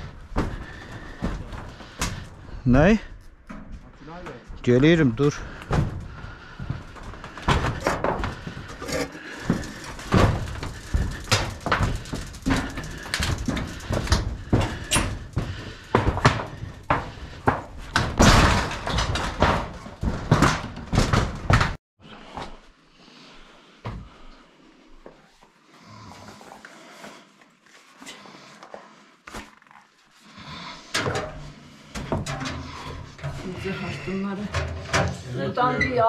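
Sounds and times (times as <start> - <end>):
footsteps on metal roofing sheets: 0.0 - 22.6, 31.0 - 35.0.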